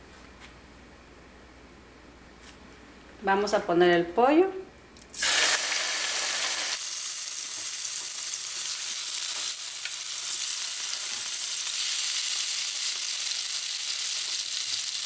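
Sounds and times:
chicken sizzling in frying pan: 0:05.1 - 0:15.0.

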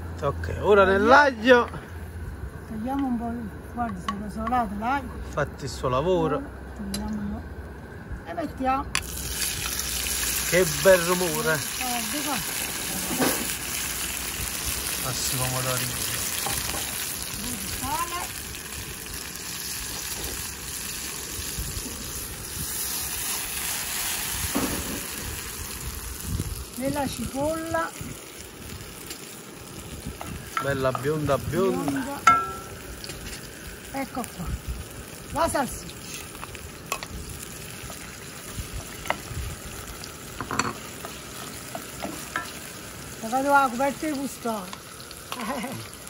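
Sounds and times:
tomatoes sizzling in a pan: 0:08.3 - 0:46.0
wind rumbling on microphone: 0:19.8 - 0:23.6, 0:24.2 - 0:29.0, 0:29.7 - 0:32.3, 0:34.3 - 0:35.9, 0:36.5 - 0:40.0
spoon knocking against pan: 0:32.2 - 0:32.7.

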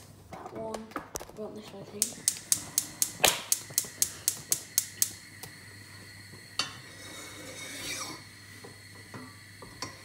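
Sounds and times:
gas hob igniter clicking: 0:02.0 - 0:05.6.

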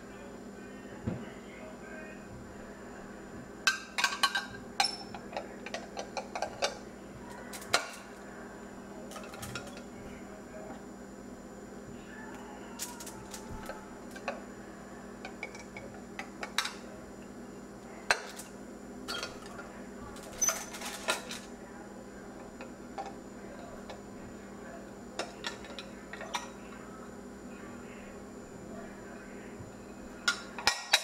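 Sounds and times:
glass dishes clinking and knocking: 0:03.7 - 0:06.7, 0:30.2 - 0:31.0.

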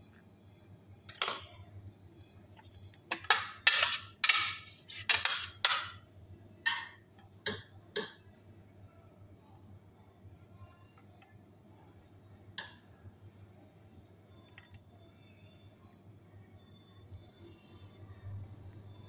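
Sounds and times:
knife clinking on ceramic plate: 0:03.1 - 0:06.0
knife scraping potato: 0:03.6 - 0:05.7.

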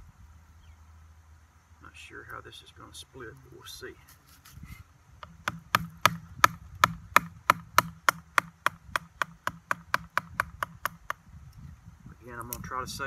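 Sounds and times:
wood baton striking blade: 0:05.2 - 0:11.2.

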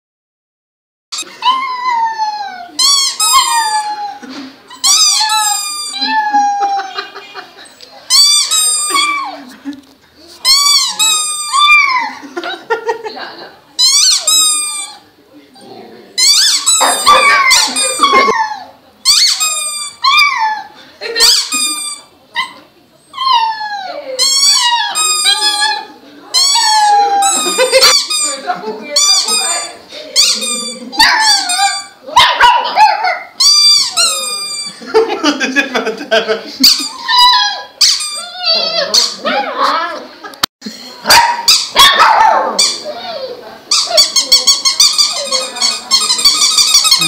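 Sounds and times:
rubber squeaky toy squeaking: 0:02.8 - 0:04.1, 0:04.7 - 0:06.3, 0:08.1 - 0:09.4, 0:10.4 - 0:12.0, 0:13.8 - 0:15.0, 0:16.2 - 0:20.5, 0:21.2 - 0:32.0, 0:33.4 - 0:34.8, 0:36.6 - 0:39.3, 0:42.6 - 0:47.0
puppy howling: 0:37.0 - 0:39.6.

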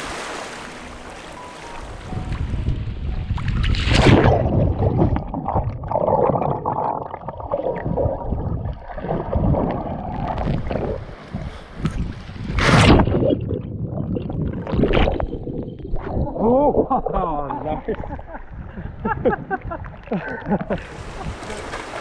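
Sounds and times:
water splashes: 0:00.0 - 0:02.6, 0:03.3 - 0:17.4, 0:19.6 - 0:22.0
water sloshing underwater: 0:00.0 - 0:22.0.

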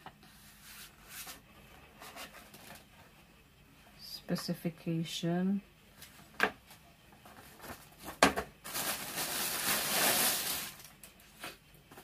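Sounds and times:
packaging crinkling rustle: 0:07.2 - 0:11.4.

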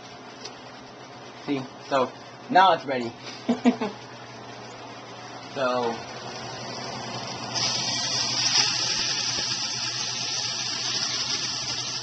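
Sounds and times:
chicken sizzling in hot oil: 0:07.6 - 0:12.0.

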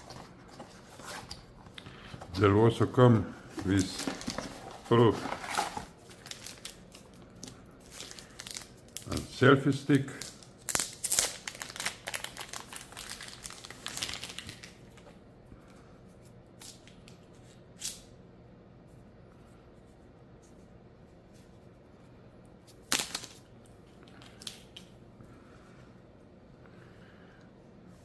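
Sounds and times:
plastic packaging crinkling: 0:03.6 - 0:09.1, 0:10.1 - 0:15.1.

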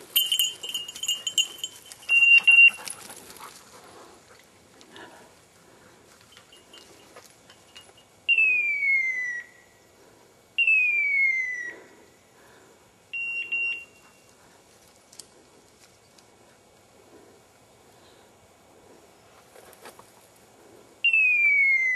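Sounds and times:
descending whistle-like calls: 0:02.1 - 0:02.8, 0:08.3 - 0:09.7, 0:10.6 - 0:12.0, 0:13.1 - 0:14.0, 0:21.0 - 0:21.9.

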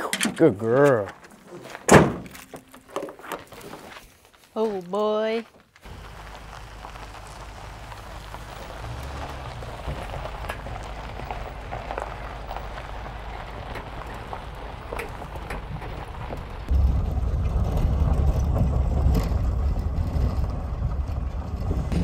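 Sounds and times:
tyres crunching on gravel: 0:00.4 - 0:22.0
truck engine rumble: 0:05.7 - 0:22.0.

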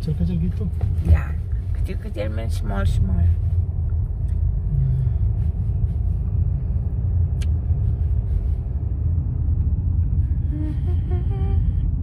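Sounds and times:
car engine and tyres rumbling: 0:00.0 - 0:12.0.

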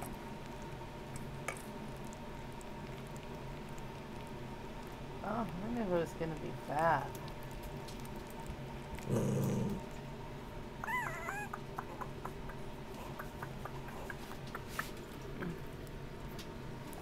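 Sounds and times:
puppy growling: 0:08.8 - 0:10.0, 0:10.8 - 0:15.9
puppies squeaking: 0:10.8 - 0:12.6.

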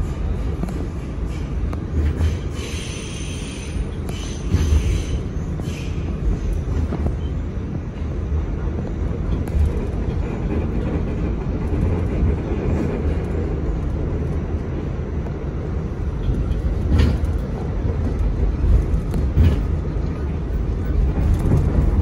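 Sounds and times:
subway car rumbling on track: 0:00.0 - 0:22.0.

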